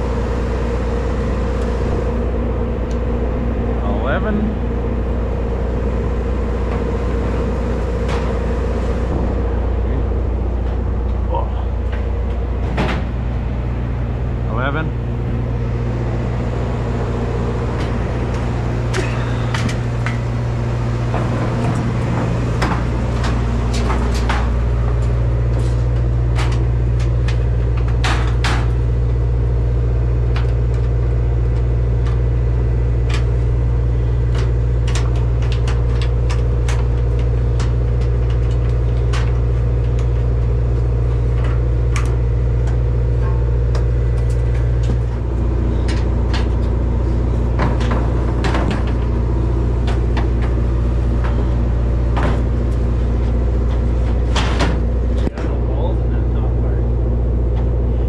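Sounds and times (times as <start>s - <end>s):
low machine hum: 0.0s - 58.0s
sharp clicks and rattles: 30.2s - 55.6s.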